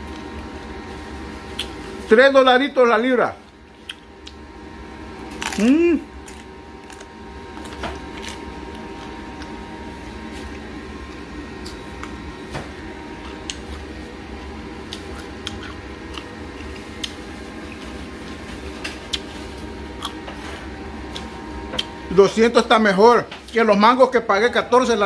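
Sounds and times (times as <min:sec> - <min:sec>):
steady low hum: 0:00.0 - 0:25.0
crunchy chewing: 0:05.3 - 0:12.3, 0:13.2 - 0:20.4.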